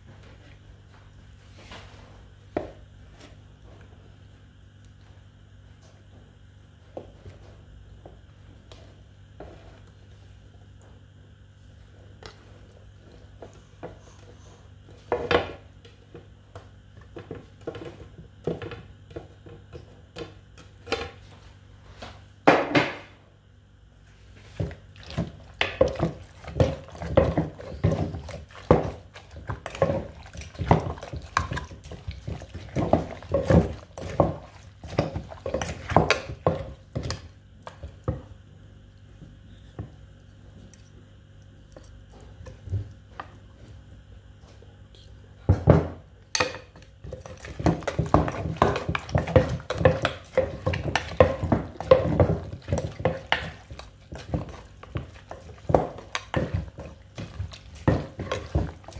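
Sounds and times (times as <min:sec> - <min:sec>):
pestle pounding in wooden mortar: 0:24.6 - 0:38.4, 0:45.5 - 0:58.9.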